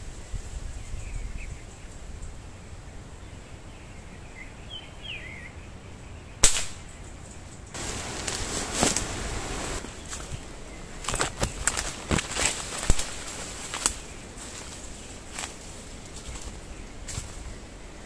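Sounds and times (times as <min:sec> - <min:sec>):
wind rumbling on microphone: 0:00.0 - 0:18.0
air rifle shot: 0:06.4 - 0:06.9
loud rustling hiss: 0:07.7 - 0:18.0.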